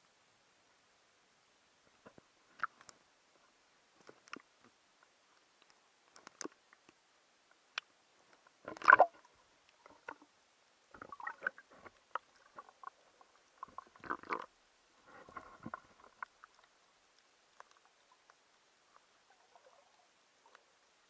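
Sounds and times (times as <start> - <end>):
underwater clicks and gurgling: 1.9 - 21.0
water sloshing: 8.6 - 9.3, 10.9 - 14.5
crackling: 10.9 - 21.0.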